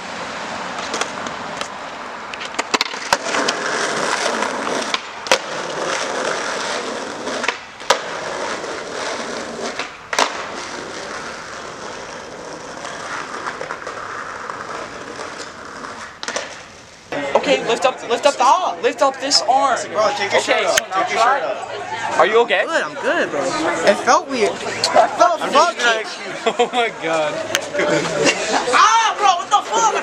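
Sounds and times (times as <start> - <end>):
skateboard wheels rolling on asphalt: 0.0 - 30.0
skateboard clacking on ground: 0.7 - 17.2.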